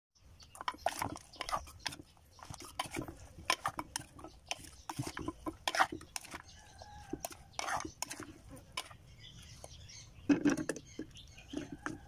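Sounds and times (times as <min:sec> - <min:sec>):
pestle pounding in a mortar: 0:00.5 - 0:09.0.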